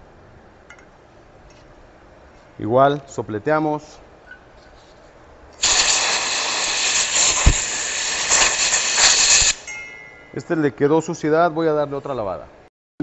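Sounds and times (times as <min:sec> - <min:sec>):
compressed air hissing: 0:05.6 - 0:09.7.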